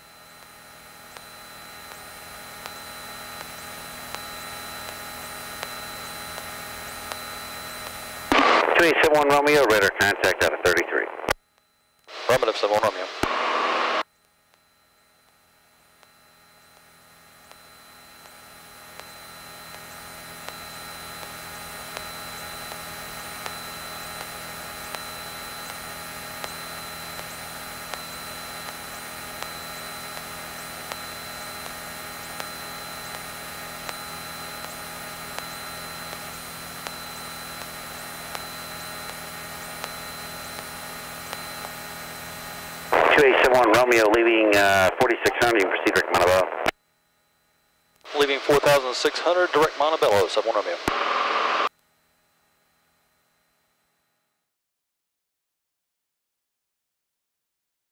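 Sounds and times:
electrical hum and hiss: 12.1 - 14.0, 26.4 - 46.7, 48.0 - 51.7.

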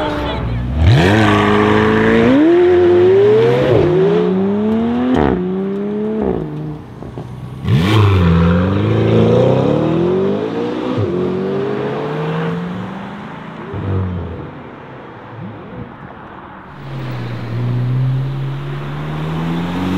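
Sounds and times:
sports car accelerating: 0.0 - 19.9
second car engine accelerating: 16.7 - 19.9.

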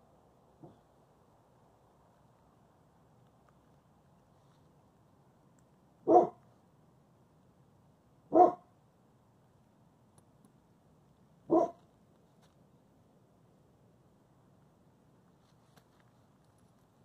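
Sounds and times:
dog barking: 6.0 - 6.4, 8.3 - 8.7, 11.5 - 11.8.

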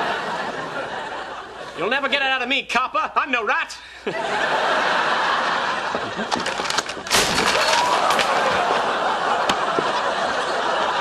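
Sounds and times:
studio audience laughter: 0.0 - 1.8, 4.0 - 6.9, 7.9 - 11.0
plastic model crashing: 6.1 - 10.0.

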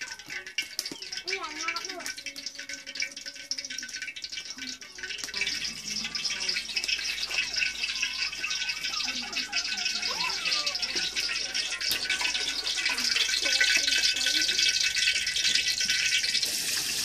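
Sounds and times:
hot oil sizzling in a wok: 0.0 - 17.0
voices talking: 4.6 - 16.5.

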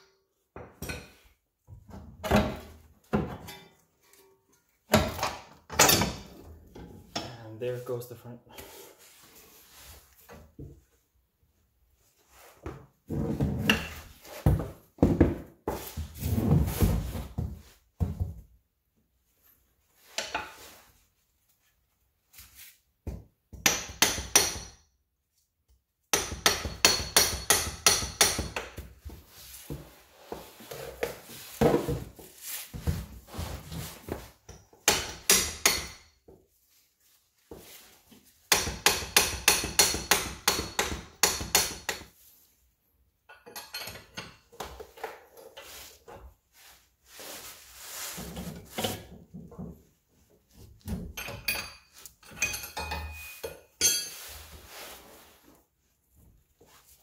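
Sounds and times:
hammer striking metal tool: 23.6 - 24.8, 26.1 - 28.6, 34.8 - 36.1, 38.5 - 42.0, 51.2 - 54.2.

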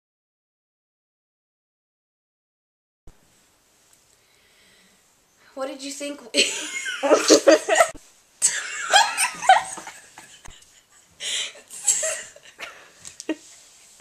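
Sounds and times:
girl laughing: 6.4 - 13.5.

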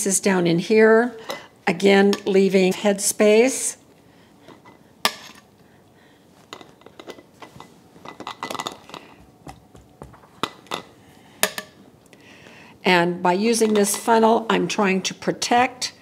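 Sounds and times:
soft taps and knocks: 9.0 - 10.5.

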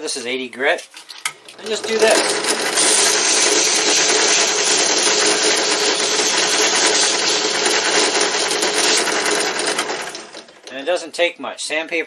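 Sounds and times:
drill press motor hum: 1.4 - 10.8
grinding hiss: 1.6 - 11.0.

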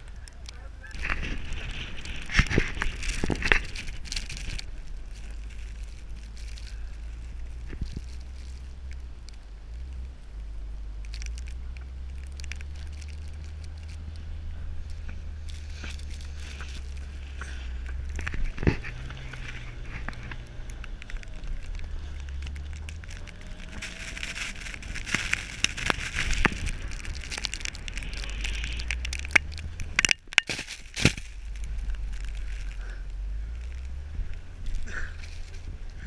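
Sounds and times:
low rumble: 0.0 - 36.0
tyres churning through snow: 0.0 - 36.0
snow spraying against camera: 12.0 - 33.0.

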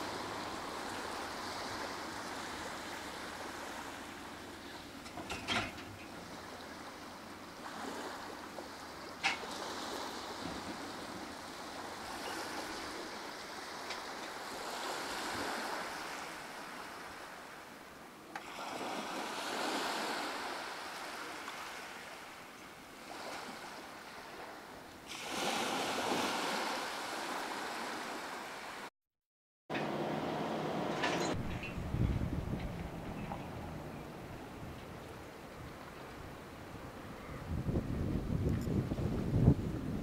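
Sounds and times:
small waves on sandy shore: 0.0 - 28.9.

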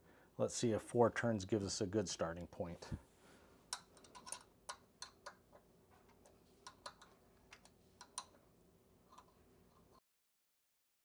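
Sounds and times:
hand tools clicking on metal: 6.6 - 8.4.

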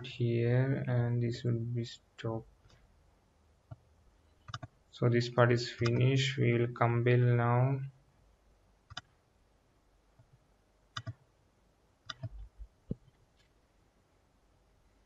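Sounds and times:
computer mouse clicking: 4.4 - 4.7, 8.9 - 9.1, 11.0 - 11.2, 12.0 - 13.1.

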